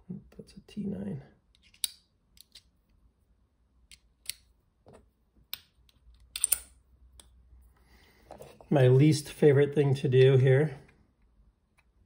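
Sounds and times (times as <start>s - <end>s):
small metal clicks of screwdriver bits: 1.5s - 2.7s, 5.5s - 7.4s.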